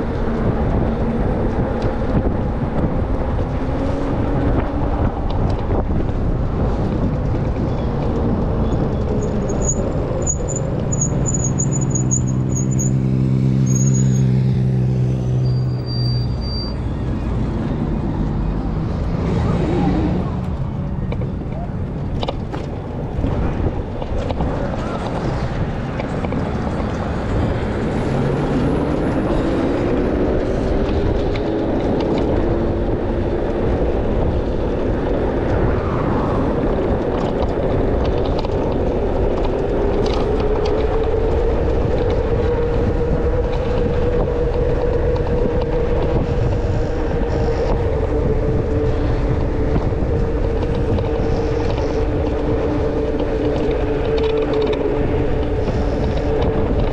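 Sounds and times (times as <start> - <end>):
wind buffeting on microphone: 0.0 - 56.9.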